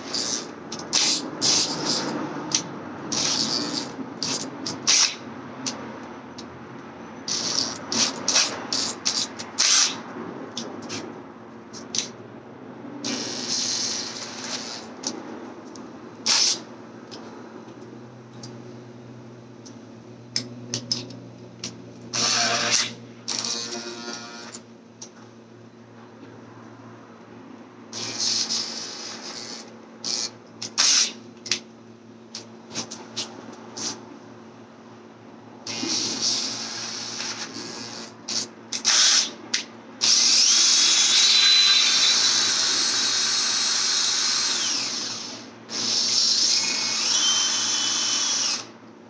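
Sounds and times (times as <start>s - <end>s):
drill cutting into metal: 3.1s - 5.2s, 7.3s - 10.0s, 13.0s - 14.9s, 16.2s - 16.7s, 22.1s - 24.6s, 28.0s - 31.2s, 35.7s - 39.4s, 40.0s - 48.8s.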